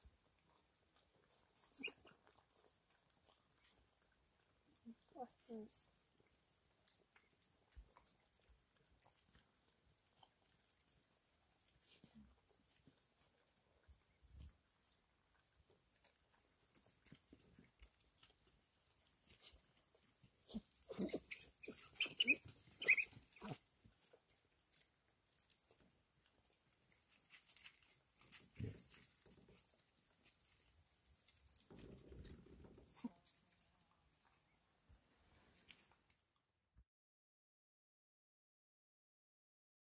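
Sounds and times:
pups squeaking and twittering: 0:01.3 - 0:02.8, 0:16.8 - 0:24.8, 0:25.4 - 0:26.0, 0:26.8 - 0:27.7.

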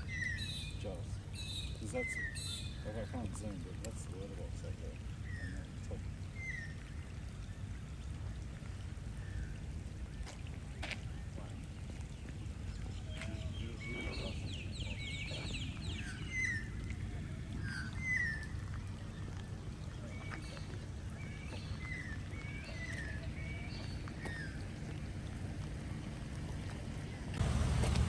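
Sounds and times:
birds chirping and whistling: 0:00.0 - 0:03.2, 0:06.3 - 0:08.2, 0:12.2 - 0:16.9, 0:17.5 - 0:24.8
steady low rumble: 0:00.0 - 0:28.0.

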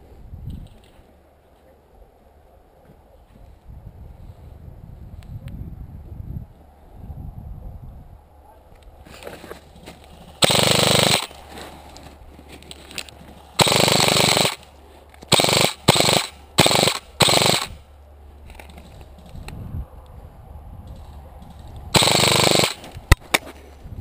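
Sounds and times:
airsoft rifle bursts: 0:10.4 - 0:11.4, 0:13.6 - 0:14.7, 0:15.3 - 0:17.8, 0:21.9 - 0:23.2.

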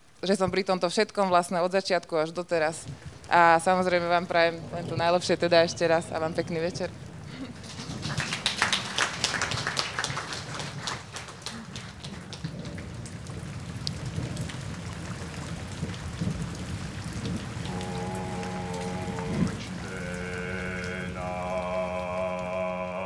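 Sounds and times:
people applauding: 0:07.3 - 0:13.4, 0:17.7 - 0:23.0
sustained musical tone: 0:17.7 - 0:23.0.

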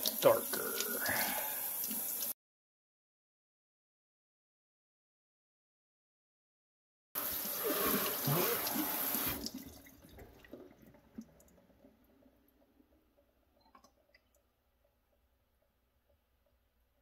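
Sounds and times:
faucet running into steel sink: 0:00.0 - 0:02.3, 0:07.2 - 0:10.8
water dripping and trickling: 0:00.0 - 0:02.4, 0:07.2 - 0:16.6.

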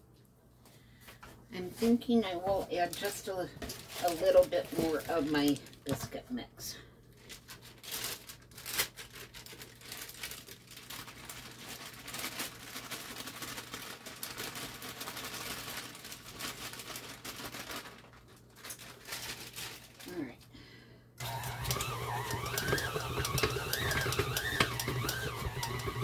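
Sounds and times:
packaging crinkling and rustling: 0:02.4 - 0:06.3, 0:07.1 - 0:20.3, 0:21.2 - 0:26.0.

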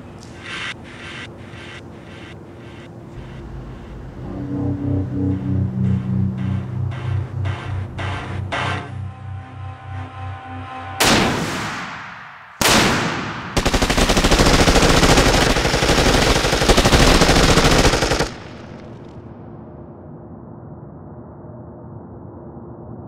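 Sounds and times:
gunshot echo: 0:11.0 - 0:13.6
heavy gunshots: 0:11.0 - 0:18.8
rapid automatic gunfire: 0:12.6 - 0:19.0.

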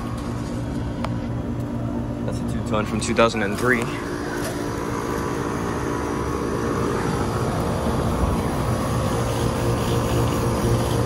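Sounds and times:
air conditioning units humming: 0:00.0 - 0:11.0
condenser fans whooshing: 0:00.0 - 0:11.0.

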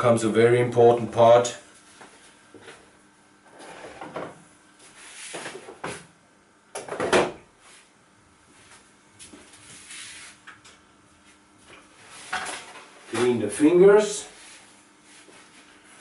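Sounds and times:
rustles and knocks at workbench: 0:04.0 - 0:06.1, 0:11.2 - 0:13.4.

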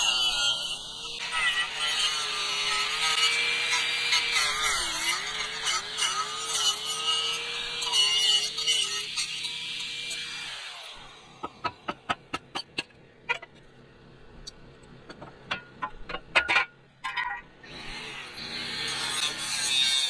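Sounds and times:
angle grinder cutting steel: 0:00.0 - 0:11.7, 0:17.1 - 0:20.0.

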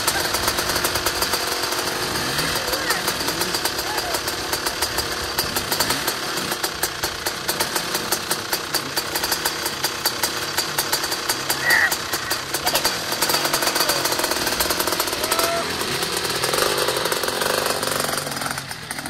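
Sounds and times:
dirt bike engine idling: 0:00.0 - 0:19.0.

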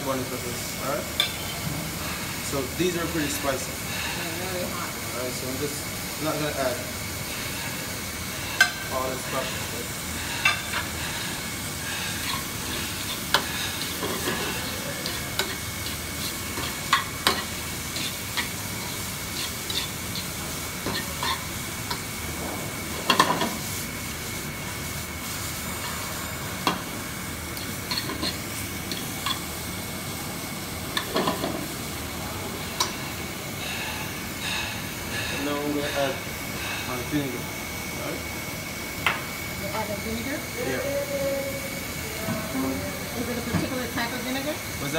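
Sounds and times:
vegetables sizzling in oil: 0:00.0 - 0:44.9
metal forks scraping pan: 0:19.3 - 0:21.5.

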